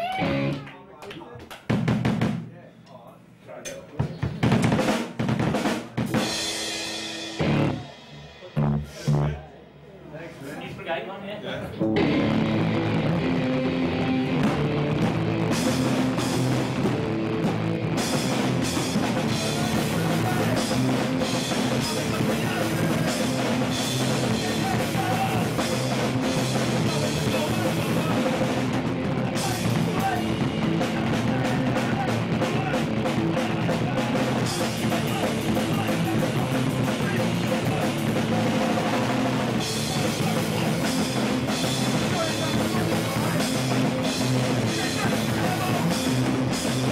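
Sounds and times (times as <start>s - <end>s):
bass guitar: 0.0s - 0.7s, 5.5s - 9.6s, 11.7s - 46.9s
distorted electric guitars: 0.0s - 0.7s, 4.2s - 9.5s, 11.8s - 46.9s
drum kit: 0.0s - 0.7s, 1.4s - 2.6s, 3.6s - 9.8s, 11.8s - 46.9s
shouted vocals: 0.0s - 0.7s, 19.2s - 40.9s, 44.4s - 46.3s.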